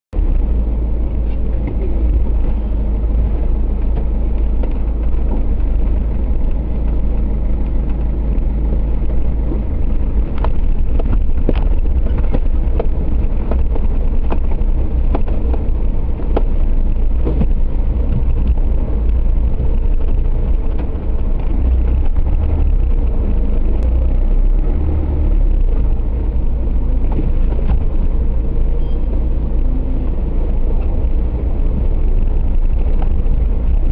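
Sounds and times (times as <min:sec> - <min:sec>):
off-road vehicle engine rumbling: 0:00.1 - 0:33.9
sharp knocks and clicks: 0:10.2 - 0:23.9.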